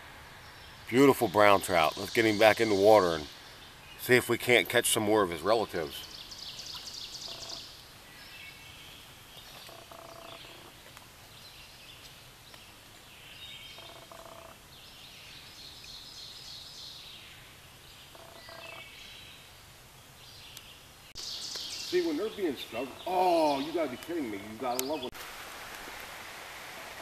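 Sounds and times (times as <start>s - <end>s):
birds singing: 0.4s - 25.2s
shallow stream flowing: 25.2s - 27.0s.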